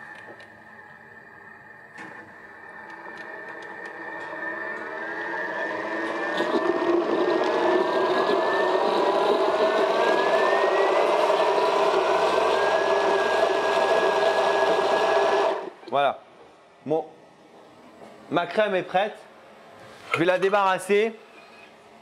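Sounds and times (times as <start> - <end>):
blender motor whining: 0.0 - 15.8.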